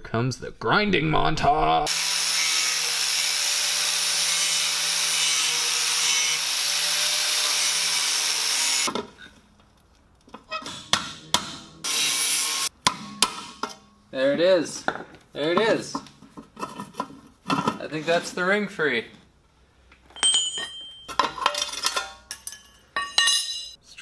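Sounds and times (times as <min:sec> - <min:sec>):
angle grinder grinding steel: 0:01.9 - 0:08.9, 0:11.8 - 0:12.7.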